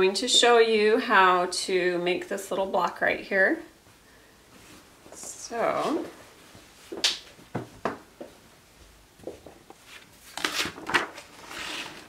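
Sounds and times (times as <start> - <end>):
paper and fabric rustling: 9.7 - 12.0.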